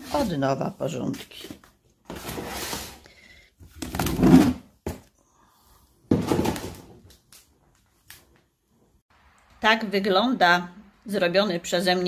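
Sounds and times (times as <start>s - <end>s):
drawers sliding open and shut: 2.1s - 3.0s.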